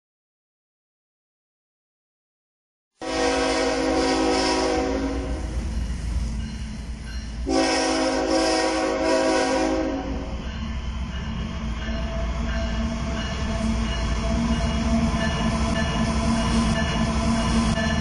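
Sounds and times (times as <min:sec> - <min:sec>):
locomotive air horn blasts: 0:03.0 - 0:05.6, 0:07.4 - 0:10.3
low train rumble: 0:03.0 - 0:18.0.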